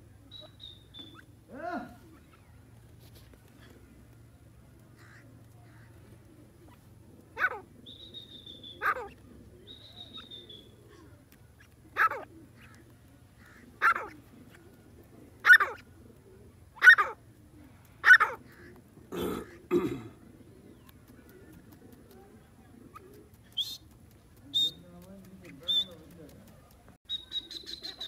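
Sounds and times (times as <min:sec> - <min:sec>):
francolin calling: 0:00.3 - 0:01.3, 0:07.4 - 0:10.8.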